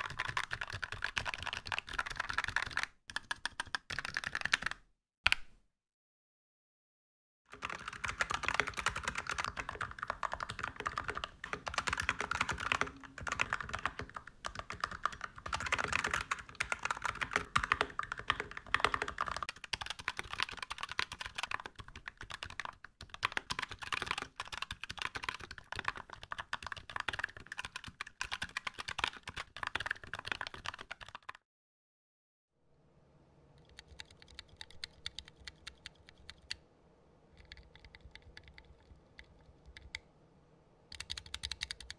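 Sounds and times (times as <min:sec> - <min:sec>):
fast mechanical keyboard typing: 0:00.0 - 0:04.8, 0:07.5 - 0:31.4, 0:33.7 - 0:36.6, 0:40.9 - 0:41.9.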